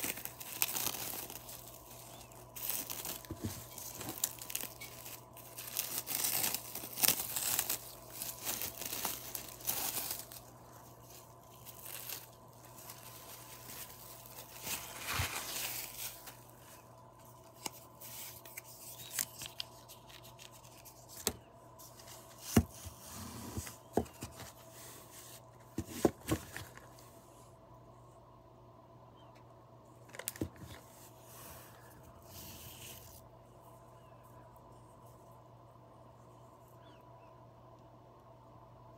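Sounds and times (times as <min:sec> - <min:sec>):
plastic wrap crinkling and tearing: 0:00.0 - 0:21.4.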